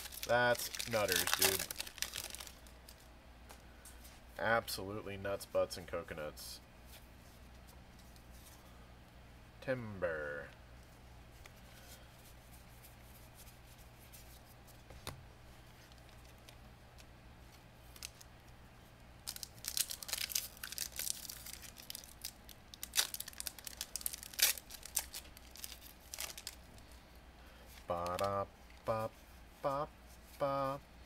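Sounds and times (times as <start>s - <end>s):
foil wrapper tearing and crinkling: 0.0s - 3.0s, 19.2s - 26.7s.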